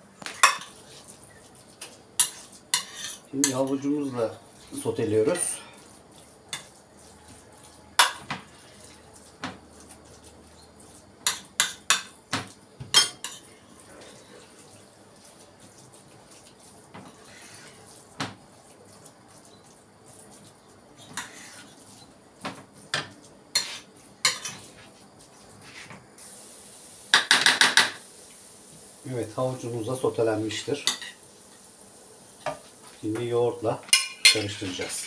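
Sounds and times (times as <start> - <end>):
spatula knocking and scraping pan: 1.7 - 3.9, 5.2 - 14.2, 15.6 - 19.7, 20.4 - 25.0, 27.1 - 28.0, 32.4 - 33.3.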